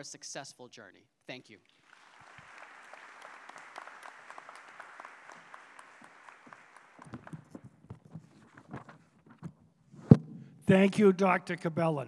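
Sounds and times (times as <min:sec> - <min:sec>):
audience applauding: 0:01.7 - 0:07.6
papers rustling at a microphone: 0:07.0 - 0:10.2.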